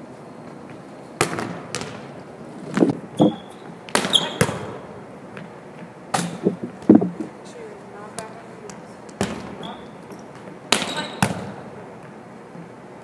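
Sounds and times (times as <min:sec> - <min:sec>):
volleyball hitting hardwood floor: 0:01.2 - 0:02.1, 0:03.2 - 0:07.2, 0:08.2 - 0:12.2.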